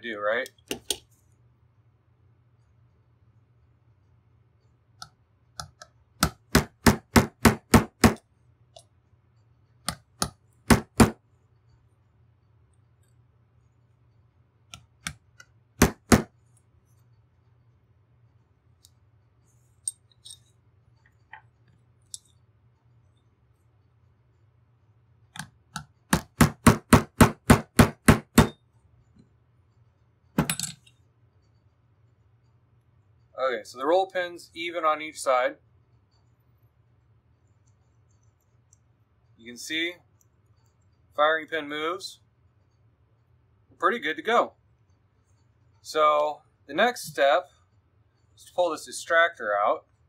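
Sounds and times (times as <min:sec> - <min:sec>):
hammer tapping metal pin: 0:05.0 - 0:08.2
hammer tapping a punch: 0:05.6 - 0:08.2, 0:09.8 - 0:11.2, 0:15.8 - 0:16.3, 0:25.4 - 0:28.6.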